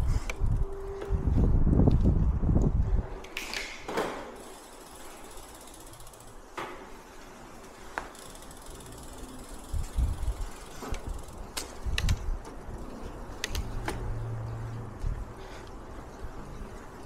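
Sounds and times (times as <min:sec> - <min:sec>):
wind rumble on microphone: 0:00.0 - 0:03.2, 0:09.6 - 0:17.0
mechanical ratchet clicking: 0:04.4 - 0:06.4, 0:08.2 - 0:12.2.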